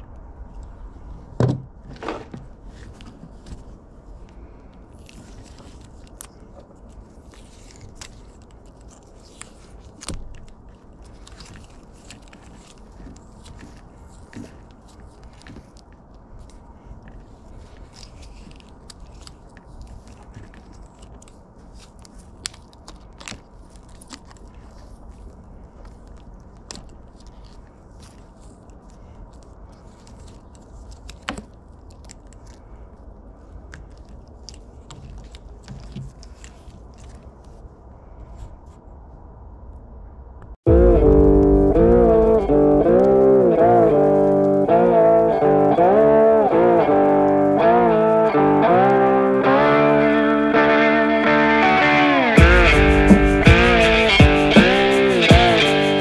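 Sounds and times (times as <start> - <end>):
tape peeling crackles and rustles: 2.5 - 39.1.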